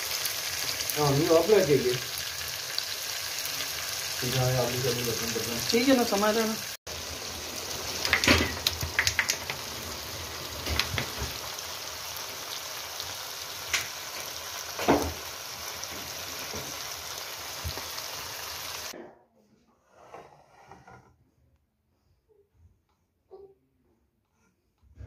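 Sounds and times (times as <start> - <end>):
meat sizzling and frying: 0.0 - 19.0.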